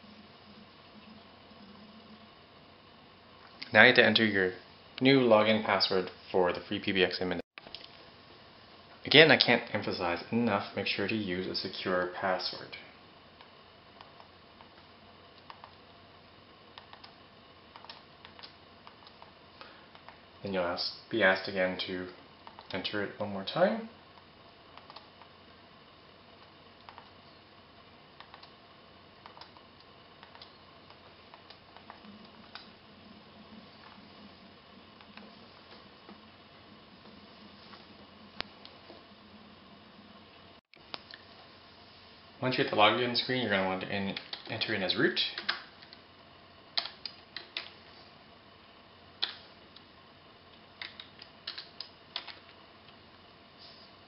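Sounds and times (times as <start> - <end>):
computer keyboard keys clicking: 16.8 - 19.2, 24.8 - 25.1, 50.8 - 52.4.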